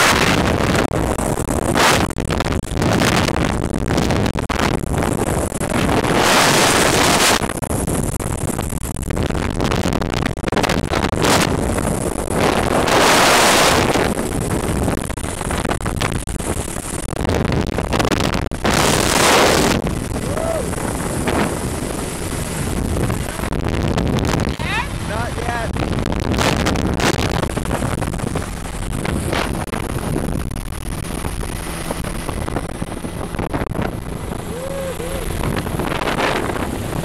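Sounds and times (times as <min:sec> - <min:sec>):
wind roaring over microphone: 0:00.0 - 0:37.0
helicopter running: 0:18.6 - 0:23.5, 0:27.3 - 0:37.0.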